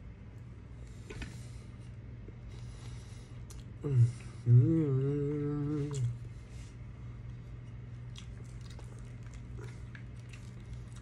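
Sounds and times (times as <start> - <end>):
low room hum: 0.0 - 11.0
soft chewing: 0.3 - 4.4, 5.0 - 11.0
person humming with mouth full: 3.8 - 6.2.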